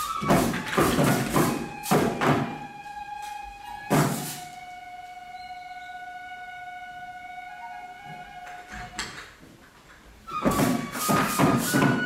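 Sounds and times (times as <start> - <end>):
drum beats: 0.0 - 2.8, 3.9 - 4.6, 10.4 - 12.0
bamboo flute high note: 0.0 - 9.0, 10.3 - 12.0.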